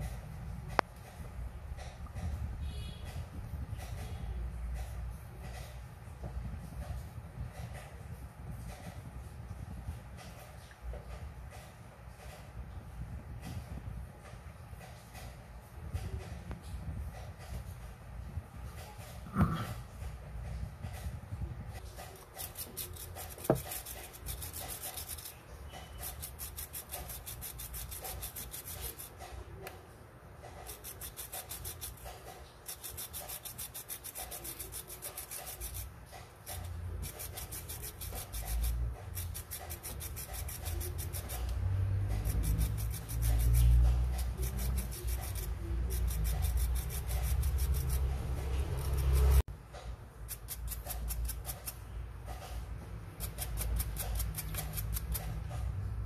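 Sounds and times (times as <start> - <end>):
coin scratching on wire brush: 21.7 - 29.8, 30.4 - 49.4, 50.2 - 55.7.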